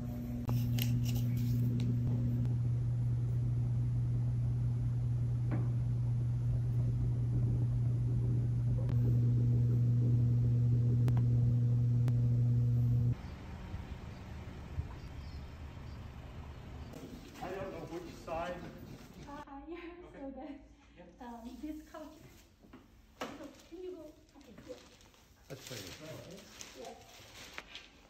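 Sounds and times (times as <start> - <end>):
low machine hum: 0.0 - 19.4.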